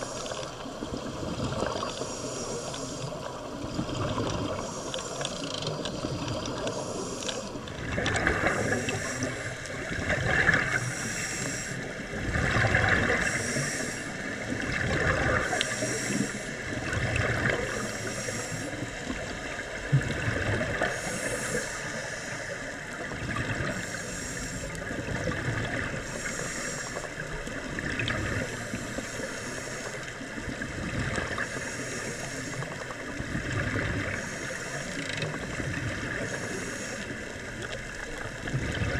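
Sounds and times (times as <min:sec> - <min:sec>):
diver breathing through regulator: 0:00.0 - 0:00.7, 0:01.7 - 0:03.5, 0:04.3 - 0:12.1, 0:12.7 - 0:14.5, 0:15.1 - 0:16.7, 0:17.5 - 0:18.9, 0:20.8 - 0:22.8, 0:23.6 - 0:25.0, 0:25.8 - 0:27.3, 0:28.3 - 0:30.2, 0:31.1 - 0:32.9, 0:34.0 - 0:37.7
exhaled bubbles gushing: 0:00.9 - 0:02.0, 0:07.7 - 0:09.1, 0:09.8 - 0:10.8, 0:12.1 - 0:13.6, 0:14.3 - 0:15.6, 0:16.6 - 0:17.8, 0:27.6 - 0:28.6, 0:37.5 - 0:38.9.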